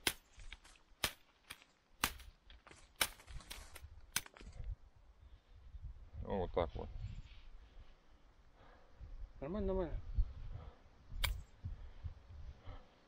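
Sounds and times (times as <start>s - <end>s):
blade snipping herb stems: 0.0s - 4.4s.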